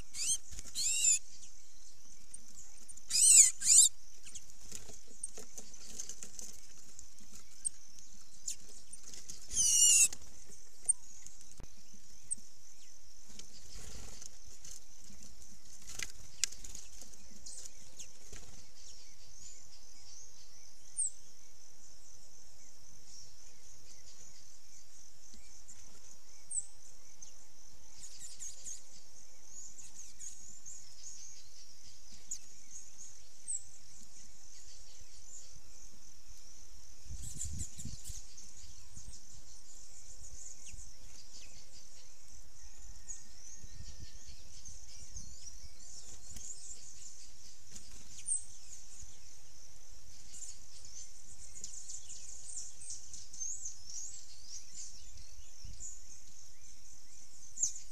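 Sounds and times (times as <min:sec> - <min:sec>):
sharp bird chirps: 0:00.0 - 0:06.1, 0:07.4 - 0:10.2
insects chorus: 0:00.0 - 0:57.9.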